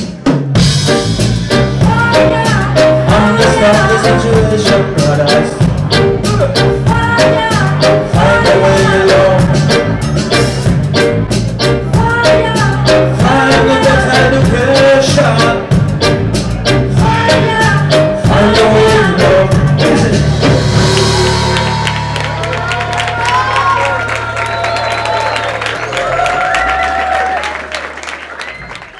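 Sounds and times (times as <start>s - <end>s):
bass line: 0.0s - 28.9s
drums: 0.0s - 28.9s
person singing: 1.6s - 10.7s, 11.8s - 22.0s.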